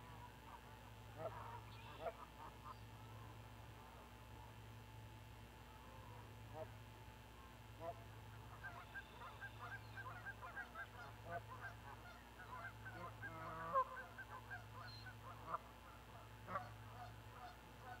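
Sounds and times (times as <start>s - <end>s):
geese honking: 7.8s - 18.0s.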